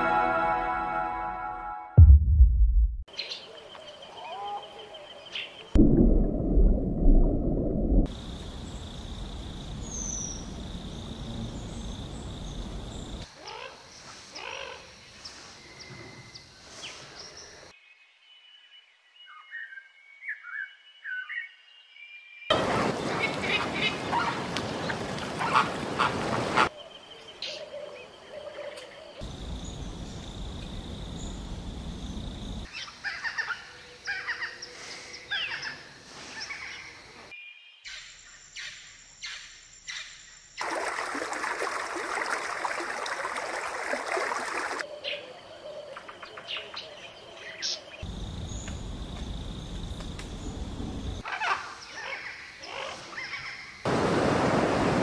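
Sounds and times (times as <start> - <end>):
low rushing noise: 2.0 - 3.1
background hiss: 29.2 - 32.7.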